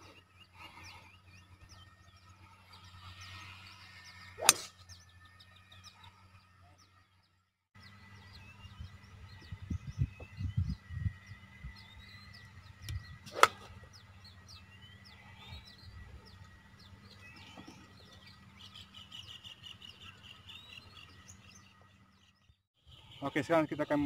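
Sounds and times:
birds chirping: 0.0s - 24.0s
golf club striking ball: 4.4s - 4.8s, 13.3s - 13.8s.

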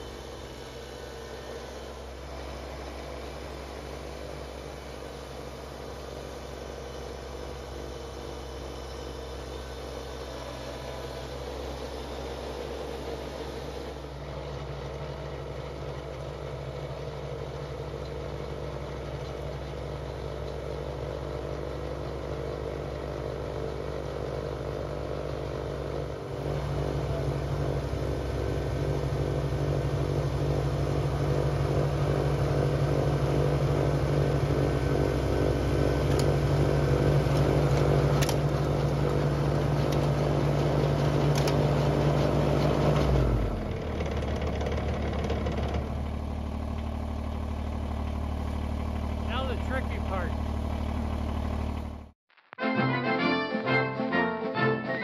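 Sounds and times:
tractor diesel engine running: 0.0s - 52.2s.

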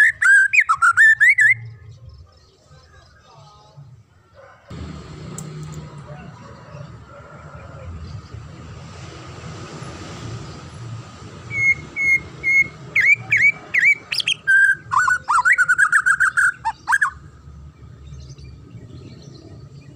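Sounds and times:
songbird singing: 0.0s - 4.7s, 5.4s - 19.9s.

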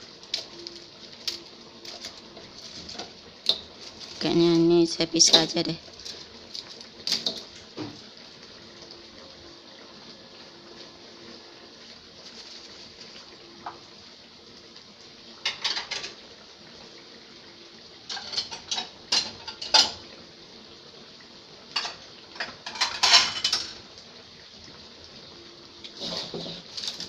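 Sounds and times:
faint steady hiss: 0.0s - 27.0s
dishes and cutlery clinking: 15.5s - 16.2s, 18.1s - 20.0s, 21.8s - 23.8s.

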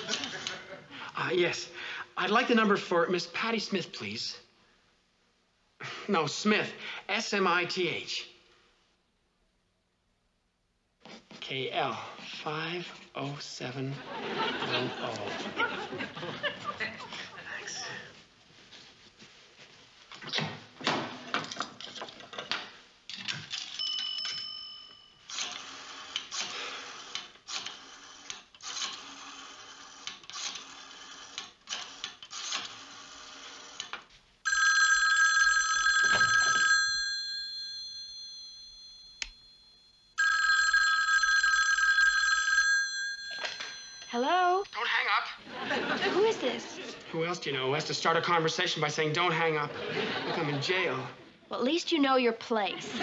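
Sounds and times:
telephone bell ringing: 23.8s - 26.2s, 34.4s - 44.9s.

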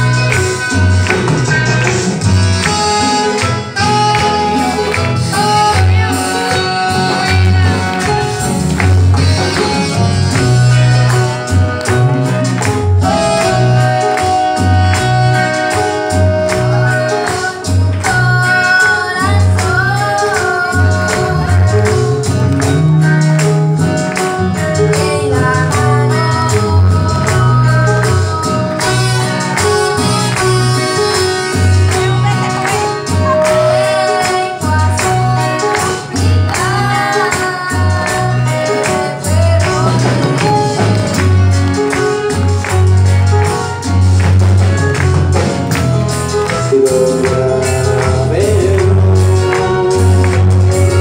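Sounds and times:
band with keyboards and bass: 0.0s - 51.0s
women singing gospel: 24.8s - 28.8s.

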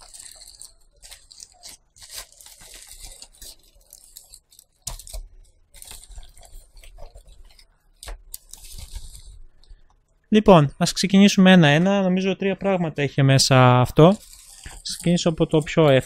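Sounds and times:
plastic crinkling and tearing: 0.0s - 10.0s, 13.9s - 16.0s.

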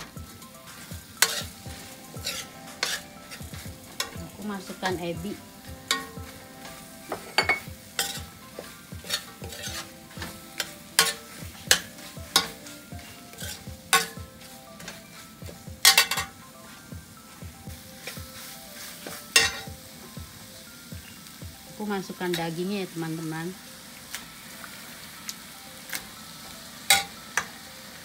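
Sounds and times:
food sizzling: 0.0s - 28.0s
metal spoon scraping frying pan: 1.2s - 4.2s, 5.9s - 15.2s, 15.8s - 16.4s, 18.0s - 19.7s.

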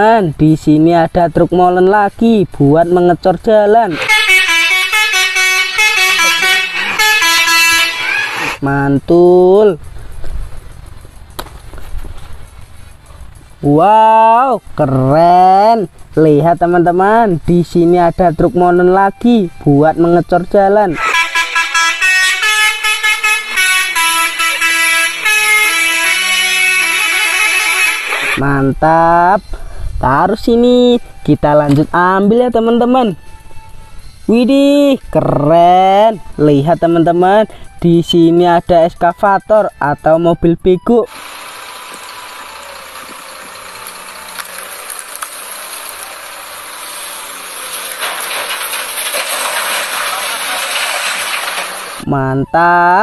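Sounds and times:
excavator diesel engine running: 3.9s - 8.6s, 20.9s - 28.4s, 41.0s - 52.1s
musical air horn playing tune: 3.9s - 8.6s, 20.9s - 28.4s.

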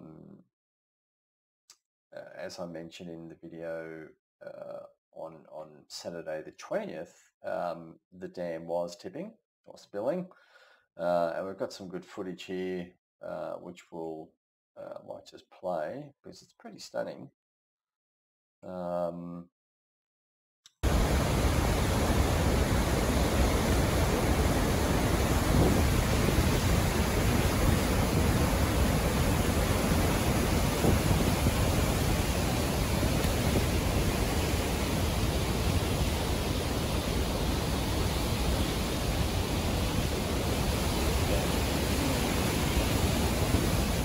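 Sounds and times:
water rushing and crashing: 20.8s - 44.0s.

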